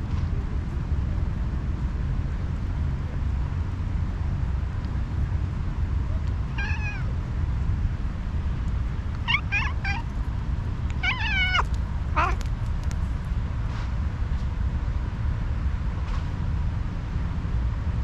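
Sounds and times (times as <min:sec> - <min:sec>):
steady low rumble: 0:00.0 - 0:18.0
cat meowing angrily: 0:06.5 - 0:07.1, 0:09.3 - 0:10.1, 0:11.0 - 0:12.5.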